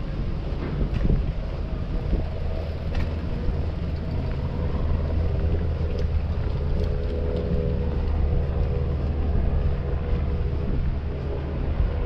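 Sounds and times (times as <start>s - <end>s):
vehicle engine droning: 0.0s - 12.0s
wind on microphone: 0.0s - 12.0s.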